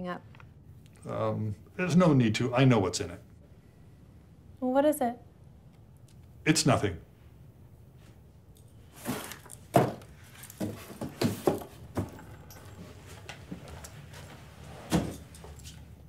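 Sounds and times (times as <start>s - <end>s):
cardboard box knocks and thuds: 9.1s - 10.0s.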